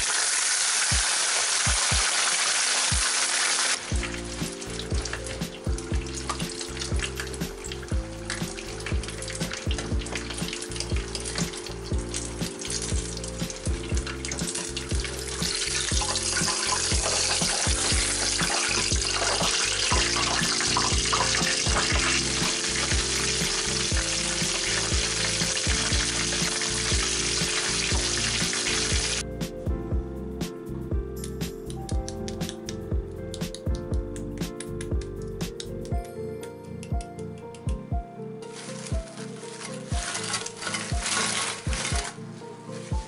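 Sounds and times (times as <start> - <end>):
chicken sizzling in hot oil: 0.0 - 29.2, 38.5 - 42.2
background music with steady beat: 0.9 - 2.3, 2.9 - 43.0.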